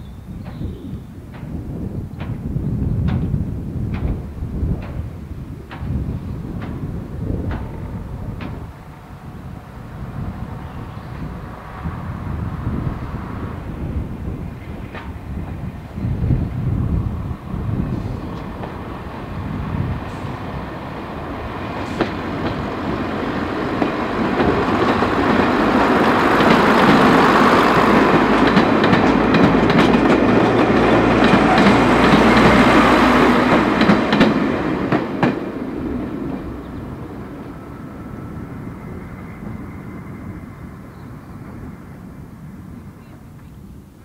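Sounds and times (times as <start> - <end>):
diesel train engines: 0.0 - 44.0
clickety-clack of train wheels: 0.3 - 9.4, 13.6 - 41.8.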